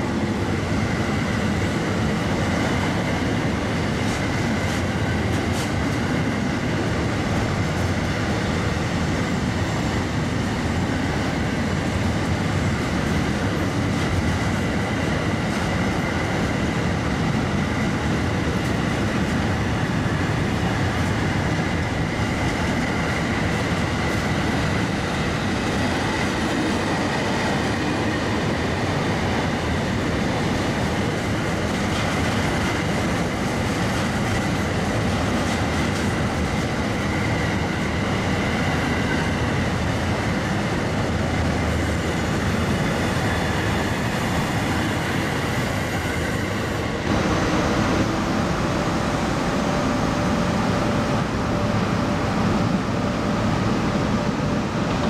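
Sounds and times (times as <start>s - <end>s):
freight train rumbling past: 0.0s - 55.0s
steady hum: 47.0s - 55.0s.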